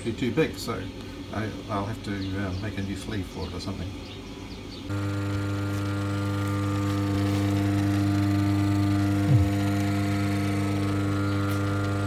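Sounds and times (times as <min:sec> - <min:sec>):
electric motor humming: 0:04.9 - 0:12.0.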